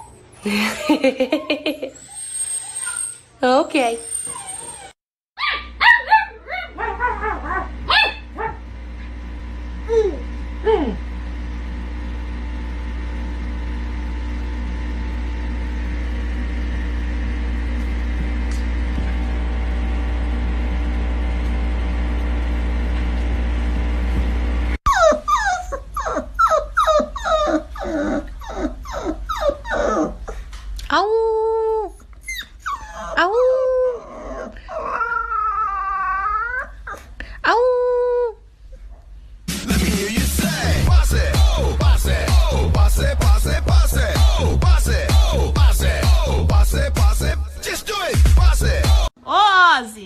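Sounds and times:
puppy whining: 0:00.0 - 0:00.5, 0:01.1 - 0:08.6, 0:09.8 - 0:11.0, 0:24.8 - 0:39.1
puppy barking and yipping: 0:04.0 - 0:08.6
steady low hum: 0:06.8 - 0:24.8, 0:38.4 - 0:49.2.

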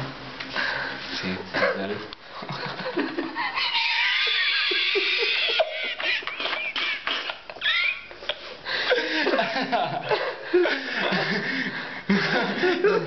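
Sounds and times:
person laughing high-pitched: 0:03.1 - 0:11.6.

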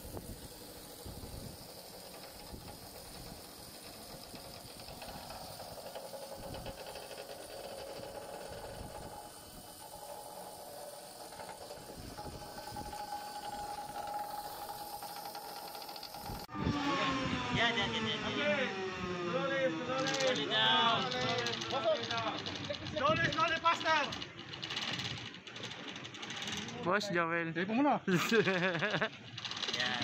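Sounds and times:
wind buffeting microphone: 0:00.0 - 0:03.7, 0:11.1 - 0:15.0, 0:16.1 - 0:18.2
steady hiss: 0:00.0 - 0:16.5
low machinery hum: 0:00.0 - 0:23.6.

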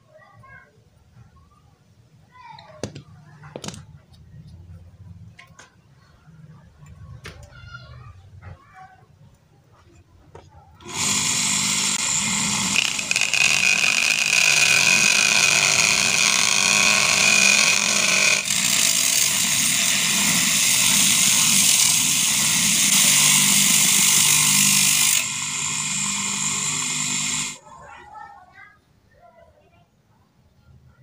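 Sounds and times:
cutting disc grinding: 0:10.8 - 0:27.6.

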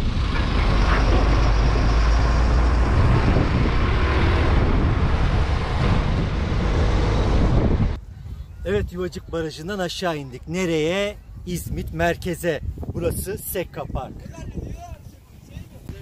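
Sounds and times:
vehicle road and engine rumble: 0:00.0 - 0:08.0.

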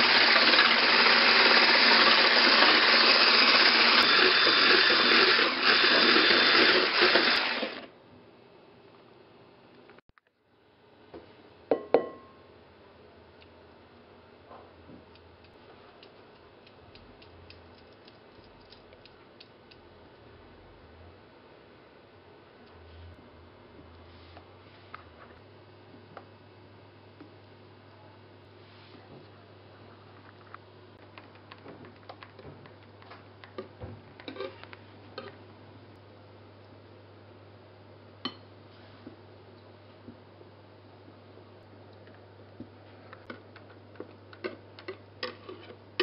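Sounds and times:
spatula tapping glass bowl: 0:11.7 - 0:12.3.

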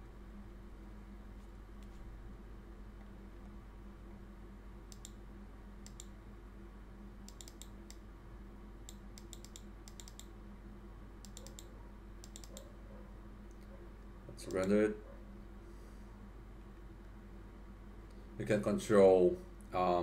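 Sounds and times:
steady low hum: 0:00.0 - 0:20.0
keyboard and mouse clicks: 0:04.9 - 0:05.2, 0:05.8 - 0:06.1, 0:07.3 - 0:08.0, 0:08.9 - 0:10.3, 0:11.2 - 0:12.7.

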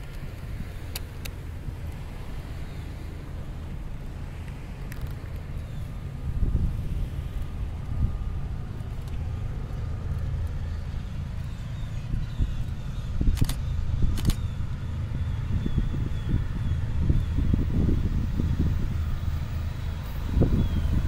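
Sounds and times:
motor vehicle rumble: 0:00.0 - 0:21.0
sharp clicks: 0:13.3 - 0:14.4.

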